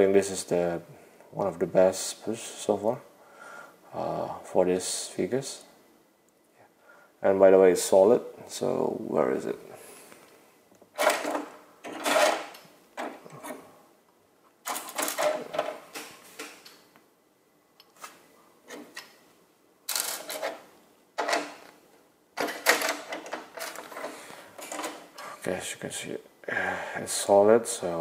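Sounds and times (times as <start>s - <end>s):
plastic toy parts clattering: 14.6s - 15.8s, 19.9s - 20.6s.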